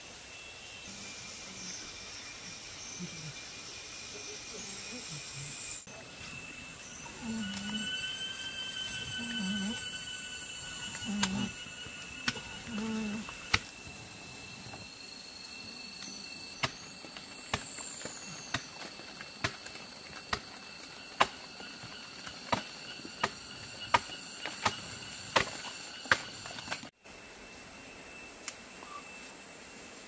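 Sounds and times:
high insect drone: 0.0s - 30.0s.

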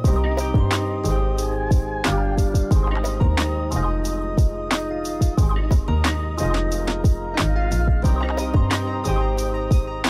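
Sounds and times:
steady drum beat: 0.0s - 0.8s, 1.6s - 10.0s
bass line: 0.0s - 10.0s
held chords: 0.0s - 10.0s.

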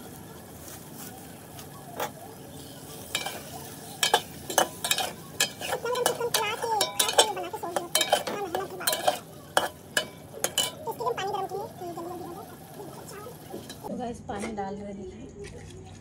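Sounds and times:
frying sizzle: 0.0s - 13.9s
metal ladle scraping metal pot: 3.0s - 11.0s.

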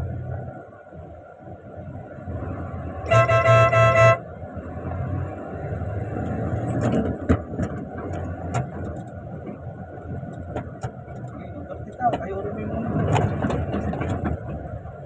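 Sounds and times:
truck engine and road noise: 0.0s - 15.0s
vehicle horn blast: 3.0s - 4.2s.

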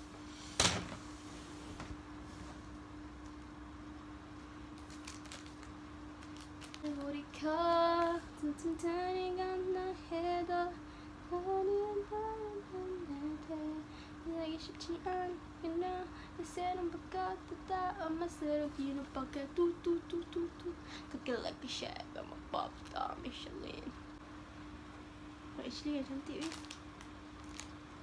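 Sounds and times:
steady low hum: 0.0s - 28.0s
woman singing: 6.8s - 23.9s.

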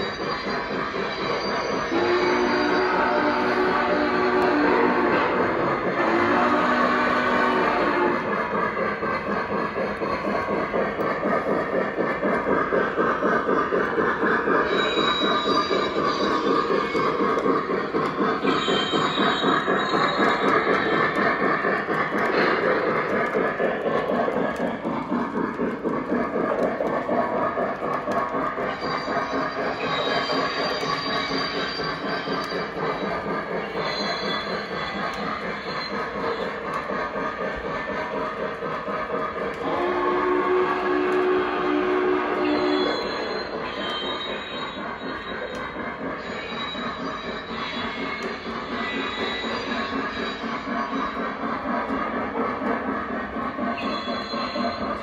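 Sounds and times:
model steam train chuffing: 0.0s - 55.0s
model train running on track: 0.0s - 55.0s.

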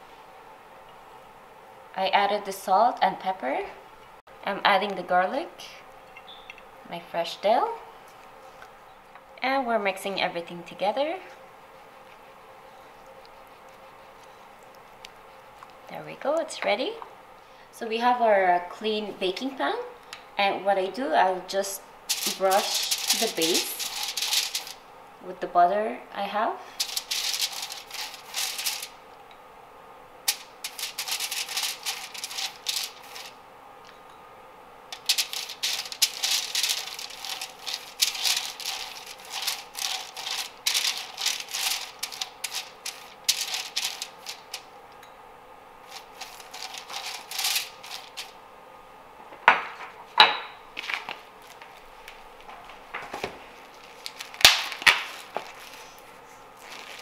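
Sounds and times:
pastry brush stroking on foil: 11.0s - 16.0s, 22.1s - 24.8s, 26.7s - 29.0s, 30.3s - 33.4s, 34.9s - 44.7s, 45.8s - 48.4s, 53.7s - 57.0s.

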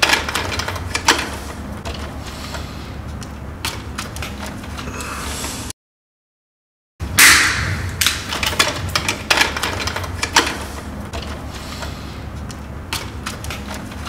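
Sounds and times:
steady low hum: 7.0s - 14.0s.

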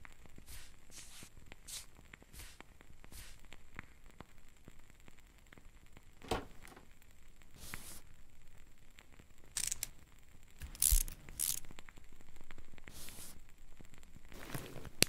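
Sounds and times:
dull thump: 6.2s - 6.8s
scraping and rustling: 14.3s - 15.0s.

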